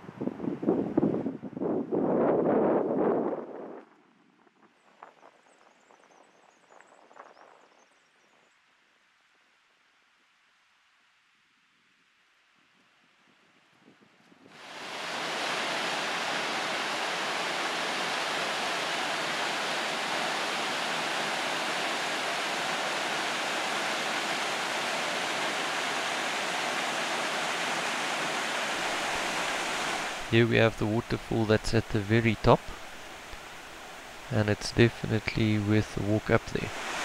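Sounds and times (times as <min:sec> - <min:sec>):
waterfall rushing: 0:14.6 - 0:37.0.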